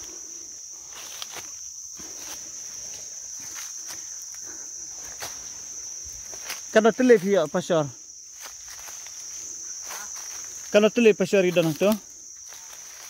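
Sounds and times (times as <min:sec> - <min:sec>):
insects buzzing: 0:00.0 - 0:13.0
footsteps on dry leaves: 0:05.0 - 0:13.0.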